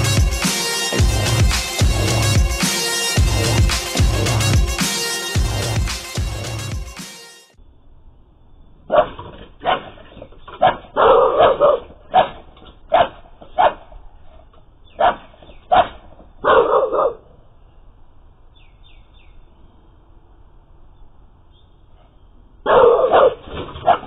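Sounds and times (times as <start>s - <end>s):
dog barking: 8.9s - 14.0s, 15.0s - 17.3s, 22.6s - 24.0s.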